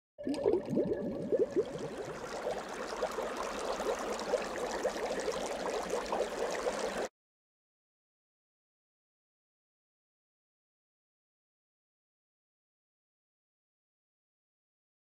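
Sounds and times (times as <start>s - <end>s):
water bubbling blips: 0.2s - 7.1s.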